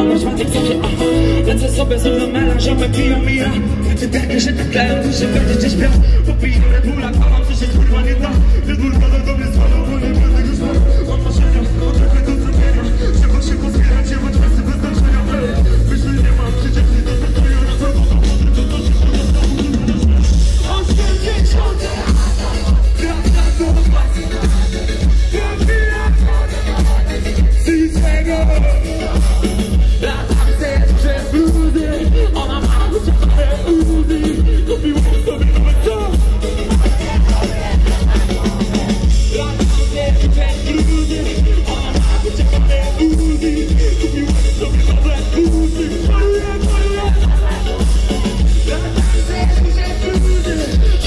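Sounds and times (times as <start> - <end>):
heavy bass beat: 0.0 - 51.0
live band playing loud music: 0.0 - 51.0
person singing: 0.0 - 51.0.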